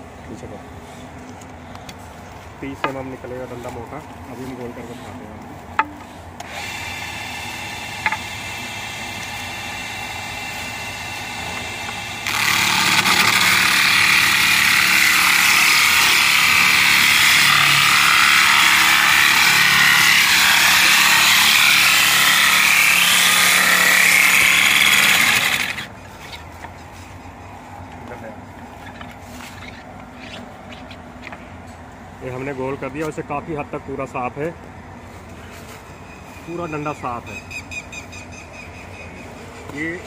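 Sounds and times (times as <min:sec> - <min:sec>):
rough wood cutting noise: 0:02.0 - 0:31.4
machine whining: 0:06.4 - 0:26.4.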